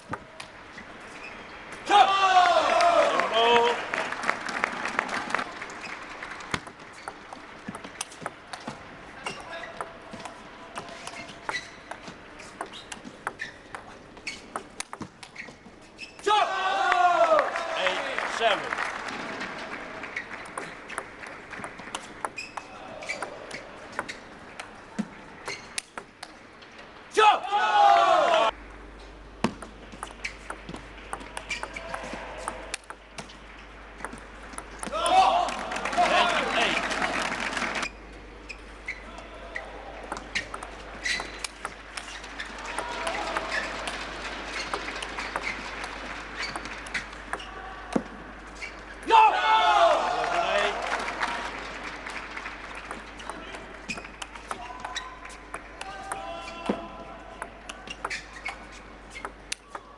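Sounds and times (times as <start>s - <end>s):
faint hall noise: 0.0s - 59.9s
applause: 2.5s - 6.6s, 16.9s - 20.2s, 35.5s - 37.8s, 50.0s - 52.9s
table tennis ball clicking: 6.5s - 10.4s, 11.1s - 15.4s, 20.2s - 24.7s, 25.5s - 26.4s, 29.5s - 33.4s, 34.0s - 35.0s, 40.1s - 47.5s, 52.7s - 56.2s, 59.2s - 59.9s
faint voices in a hall: 38.0s - 41.0s.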